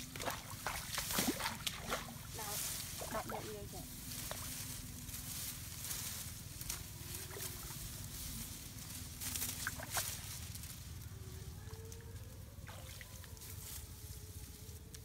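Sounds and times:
hands splashing in muddy water: 0.0 - 3.5, 9.4 - 10.2
leaves and stems rustling: 0.0 - 15.0.

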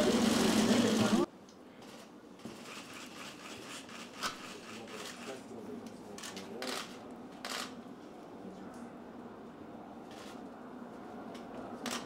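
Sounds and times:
camera shutter clicks: 6.2 - 7.7.

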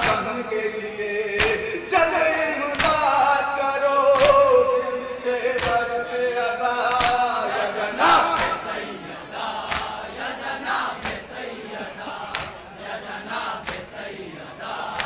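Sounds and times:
man chanting a lament: 0.0 - 9.1.

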